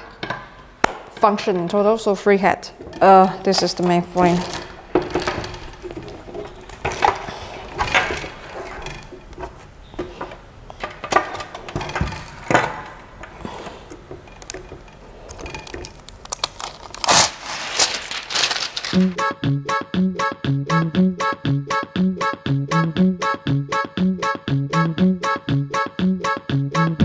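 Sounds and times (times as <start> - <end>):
knocks and clicks of metal parts: 0.0 - 1.8, 2.8 - 15.9
packaging rustling: 3.6 - 10.4, 11.2 - 19.2
background music: 19.0 - 27.0.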